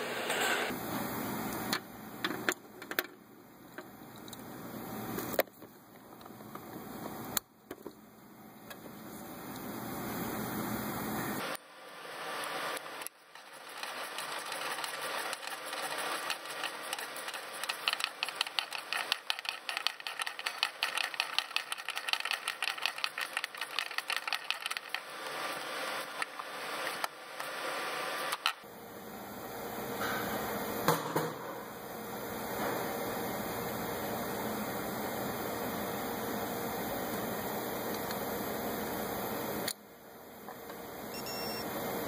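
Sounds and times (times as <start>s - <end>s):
ratchet clicking: 13.4s - 25.0s.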